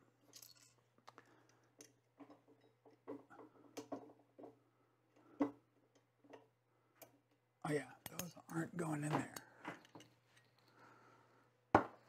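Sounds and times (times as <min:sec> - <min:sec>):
clicks and taps of small parts: 0:08.0 - 0:10.5.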